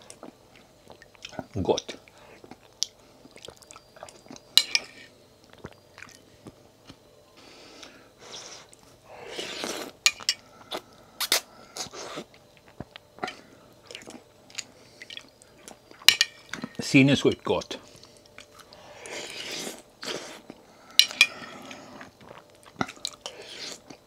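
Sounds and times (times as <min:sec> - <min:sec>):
wet chewing and smacking: 0:00.0 - 0:04.6, 0:05.4 - 0:07.0, 0:10.7 - 0:13.2, 0:13.8 - 0:16.1, 0:22.0 - 0:24.0
slurping noodles: 0:08.3 - 0:10.0, 0:18.9 - 0:20.5, 0:23.2 - 0:24.0.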